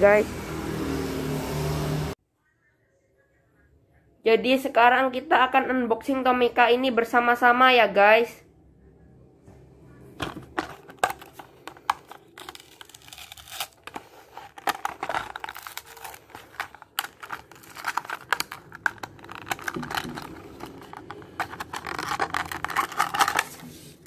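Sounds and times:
plastic blister crinkling: 10.2s - 24.0s
cardboard tearing: 10.5s - 24.0s.

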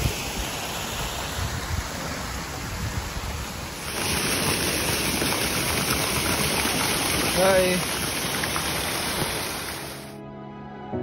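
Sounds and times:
waterfall rushing and splashing: 0.0s - 10.2s.

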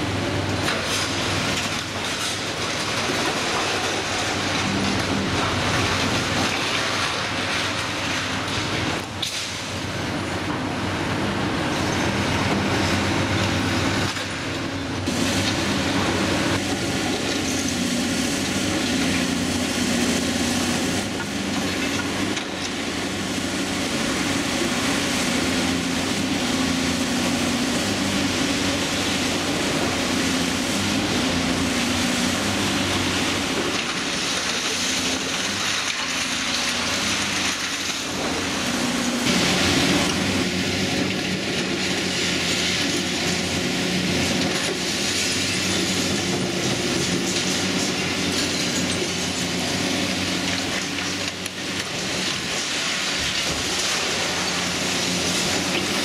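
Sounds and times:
diesel excavator engines running: 0.0s - 56.0s
hydraulic jaws crunching concrete: 11.8s - 56.0s.

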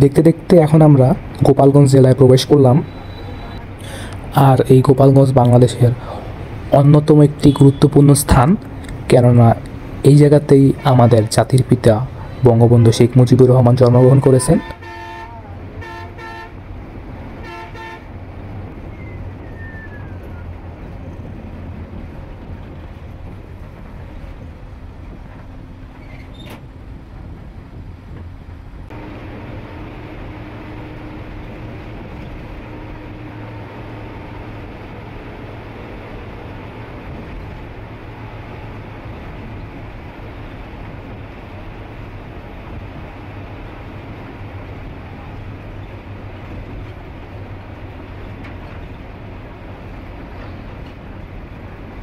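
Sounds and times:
bus engine drone: 0.0s - 52.0s
road noise: 0.0s - 52.0s
short horn toots: 14.6s - 16.6s, 17.4s - 18.1s.

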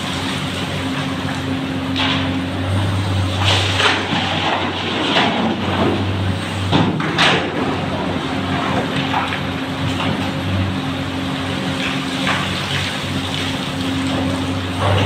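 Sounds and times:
diesel engines droning: 0.0s - 15.0s
scraping and clatter bursts: 3.0s - 10.4s.

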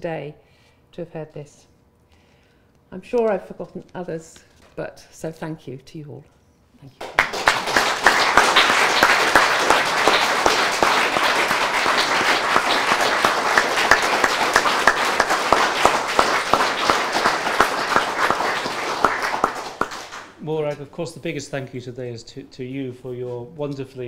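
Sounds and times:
audience applauding: 7.0s - 20.4s.

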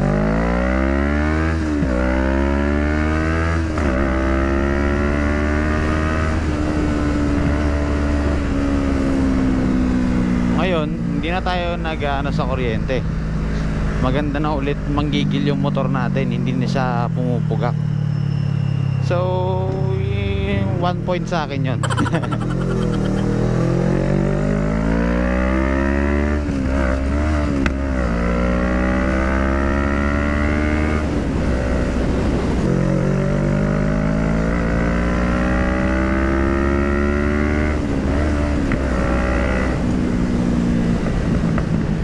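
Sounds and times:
motorcycle engine accelerating: 21.7s - 42.0s.

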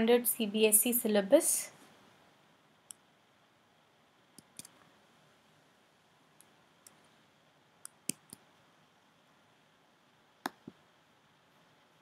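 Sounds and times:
faint computer mouse clicks: 4.4s - 4.8s, 7.8s - 8.4s.

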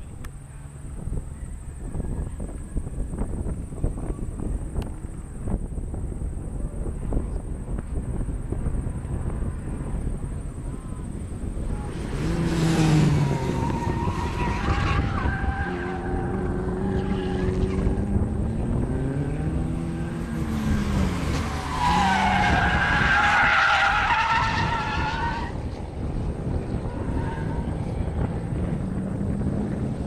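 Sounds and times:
race car engine: 7.1s - 30.0s
tyres squealing: 21.3s - 25.6s.

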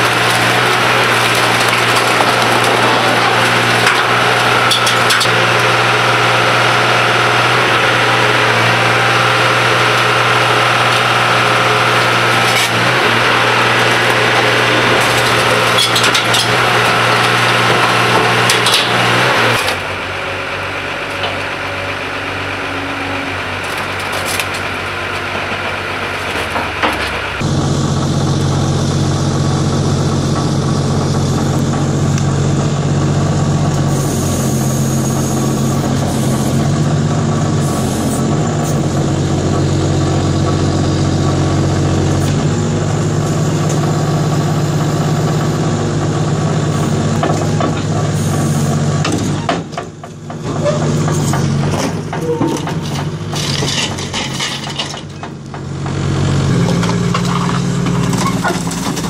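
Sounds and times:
metal clanks and scraping: 0.0s - 6.0s, 12.2s - 19.8s, 23.6s - 27.4s, 47.1s - 59.0s
excavator diesel engine running: 0.0s - 59.0s.

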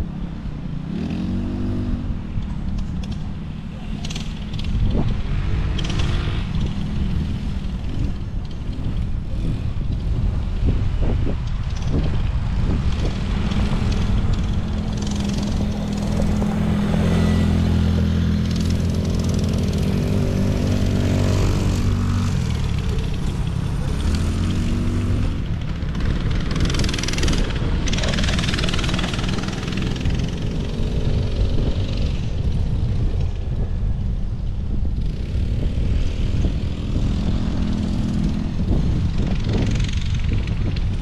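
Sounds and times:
atv engines droning: 0.0s - 41.0s
wind rumbling on microphone: 0.0s - 41.0s.

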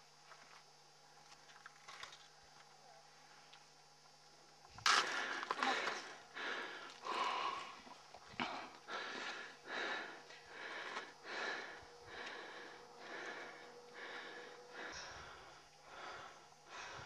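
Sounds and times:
heavy rhythmic breathing: 5.0s - 17.0s.

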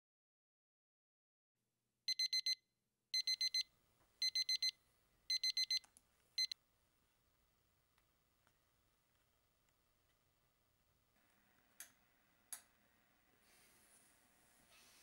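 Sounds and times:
phone alarm beeping: 2.1s - 2.6s, 3.2s - 5.8s, 6.4s - 6.6s.

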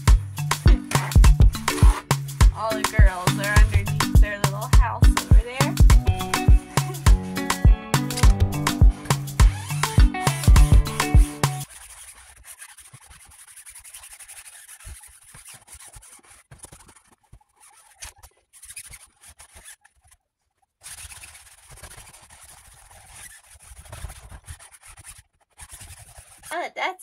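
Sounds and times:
paper towel scratching liner: 11.6s - 26.8s.

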